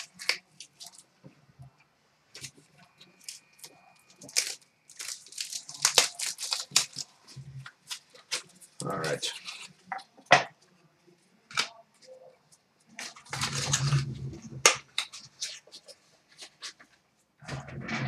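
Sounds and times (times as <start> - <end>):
cardboard box wrapping ripped open: 4.2 - 7.1, 13.1 - 15.1.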